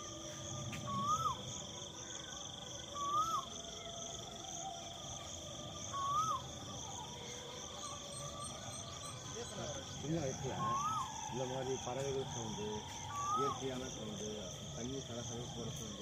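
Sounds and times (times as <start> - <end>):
high buzz of insects: 0.0 - 16.0
bird whistled call: 0.6 - 2.3, 2.9 - 3.9, 5.8 - 9.6, 10.5 - 11.4, 12.9 - 13.9.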